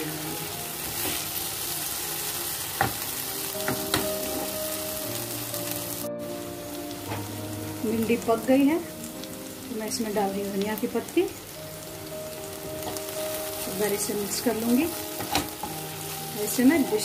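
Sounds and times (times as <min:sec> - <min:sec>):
okra sizzling in hot oil: 0:00.0 - 0:17.0.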